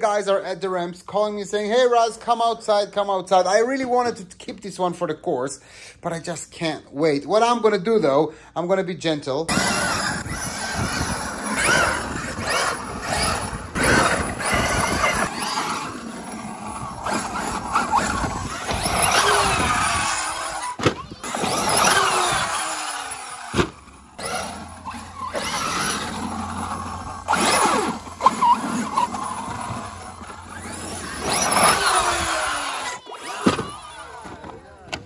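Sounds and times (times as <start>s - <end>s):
small engine revving: 9.5s - 34.6s.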